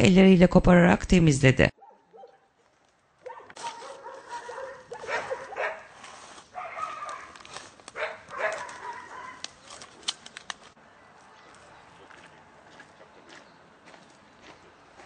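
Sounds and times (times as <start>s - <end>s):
sharp clicks: 7.8s - 10.8s.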